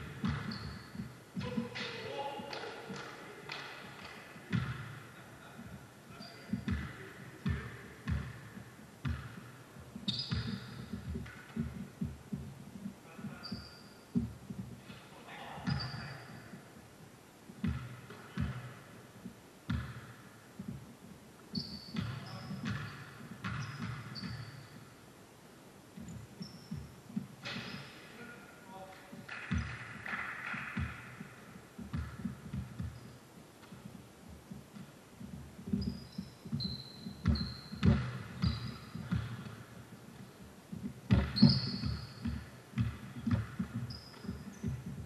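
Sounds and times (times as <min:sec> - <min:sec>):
basketball bouncing on court: 0:00.1 - 0:01.9, 0:02.5 - 0:05.0, 0:06.4 - 0:14.8, 0:17.5 - 0:18.9, 0:19.7 - 0:20.9, 0:21.5 - 0:24.9, 0:29.1 - 0:45.0
sneaker squeaks on floor: 0:00.2 - 0:01.9, 0:06.1 - 0:12.5, 0:13.2 - 0:14.7, 0:15.6 - 0:16.7, 0:21.5 - 0:24.9, 0:26.0 - 0:28.2, 0:31.9 - 0:33.9, 0:35.7 - 0:39.6, 0:41.1 - 0:45.0.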